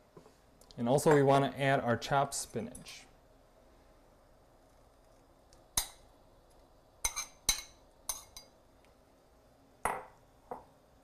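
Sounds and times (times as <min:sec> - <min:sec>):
metal spoon clinking on bowl: 0:07.0 - 0:08.5.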